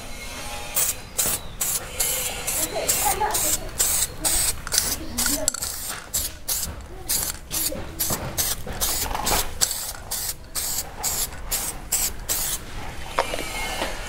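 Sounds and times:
aerosol can spraying bursts: 0.7 - 13.2.

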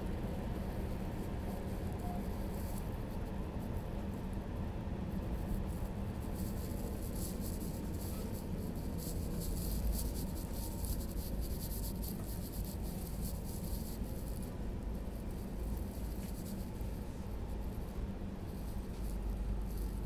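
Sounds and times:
dry crackling hiss: 5.2 - 20.0.

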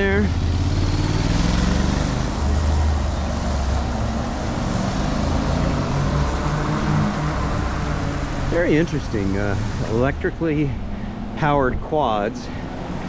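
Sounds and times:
road noise: 0.0 - 13.0
vehicle engines humming: 0.0 - 13.0.

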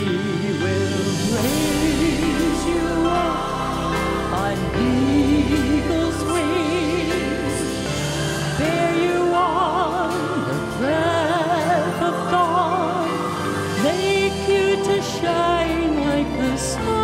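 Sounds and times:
piano: 0.0 - 17.0
woman singing with vibrato: 0.0 - 17.0.

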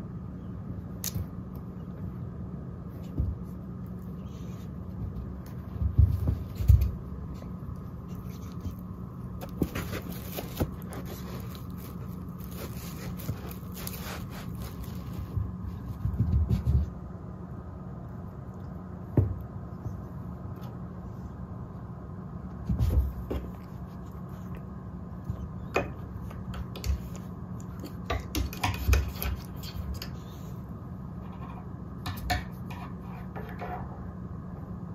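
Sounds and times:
low hum: 0.0 - 34.9
cat paws thumping on rug: 5.0 - 7.5, 12.5 - 17.0.

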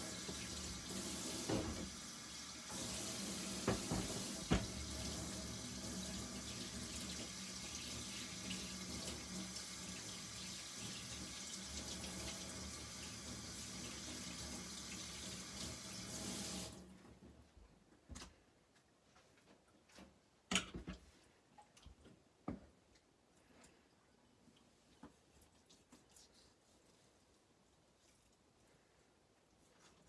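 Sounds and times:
tap running into steel sink: 3.6 - 4.8.

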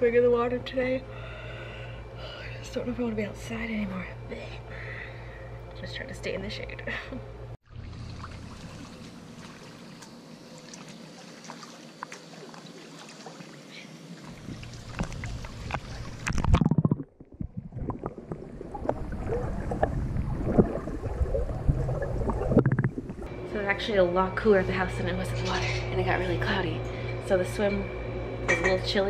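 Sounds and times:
pool water lapping and sloshing: 7.6 - 16.6, 17.4 - 23.3
small splashes: 7.7 - 23.3
underwater gurgling and bubbling: 14.3 - 23.3.

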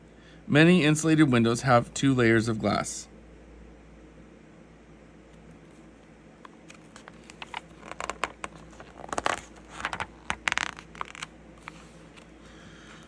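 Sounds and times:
book page rustling: 5.6 - 12.4.

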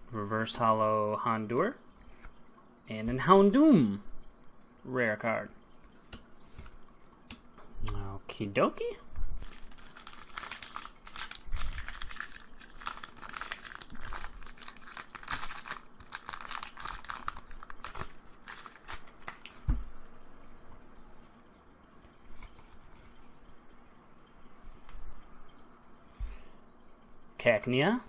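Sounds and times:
foil wrapper crinkling and tearing: 9.4 - 19.6
cards being handled: 9.4 - 19.7.

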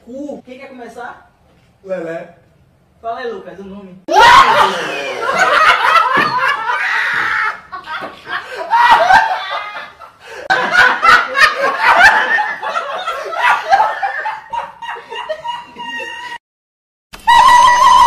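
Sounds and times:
men laughing hard: 4.1 - 16.4.

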